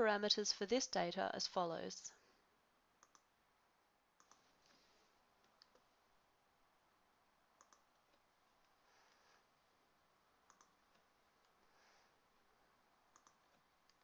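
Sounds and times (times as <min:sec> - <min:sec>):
computer mouse clicks: 0:03.0 - 0:03.3, 0:04.2 - 0:04.6, 0:05.4 - 0:05.9, 0:07.6 - 0:08.3, 0:10.4 - 0:11.6, 0:13.1 - 0:14.0.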